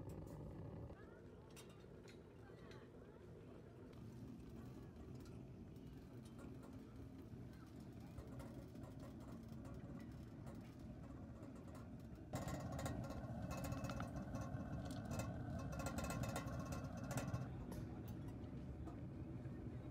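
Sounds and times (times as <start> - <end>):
stove burning rumble: 0.0 - 1.0, 3.9 - 19.9
faint steady hum: 0.0 - 19.9.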